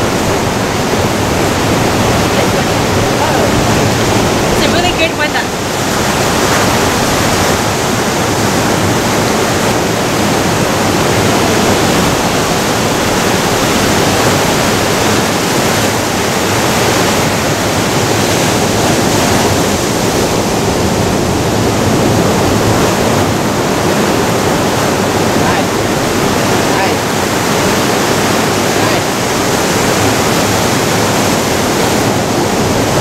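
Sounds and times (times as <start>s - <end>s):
surf washing over rocks: 0.0s - 33.0s.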